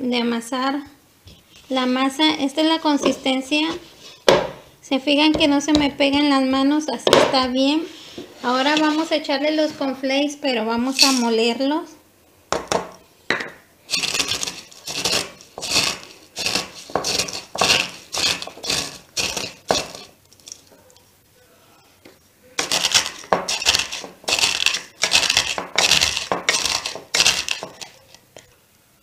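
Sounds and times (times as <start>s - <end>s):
cornflakes crunching by hand: 13.9s - 20.7s, 22.6s - 28.2s.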